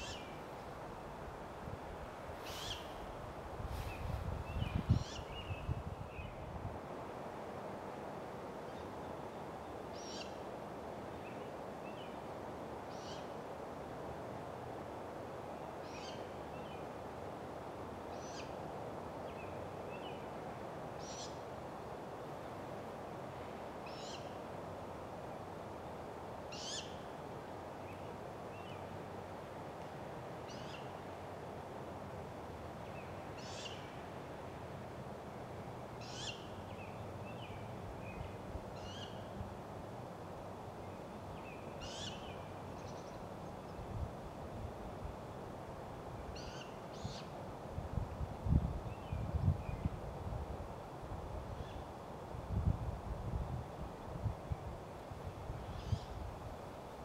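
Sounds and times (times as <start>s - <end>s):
outdoor background hiss: 0.0s - 57.0s.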